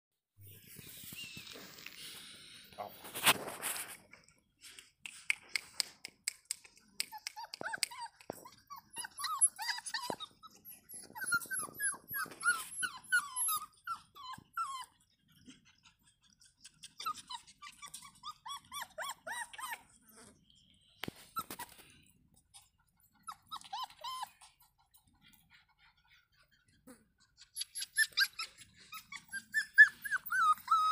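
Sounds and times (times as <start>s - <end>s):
puppies whining and yelping: 0.5s - 4.0s, 7.0s - 30.9s.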